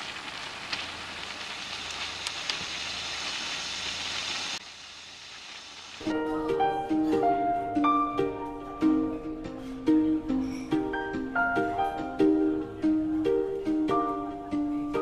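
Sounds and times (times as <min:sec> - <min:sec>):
chicken sizzling in hot oil: 0:00.0 - 0:06.1
background music: 0:06.0 - 0:15.0.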